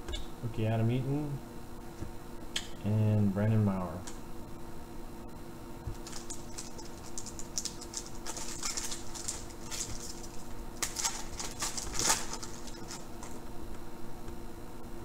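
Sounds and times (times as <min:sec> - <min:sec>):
foil wrapper crinkling and tearing: 0:05.9 - 0:13.4.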